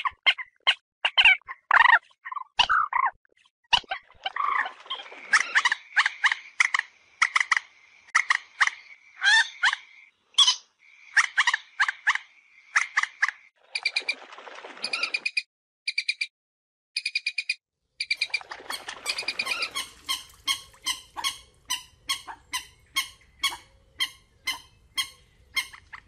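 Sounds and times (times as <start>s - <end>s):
moorhen calls: 18.0s - 26.0s.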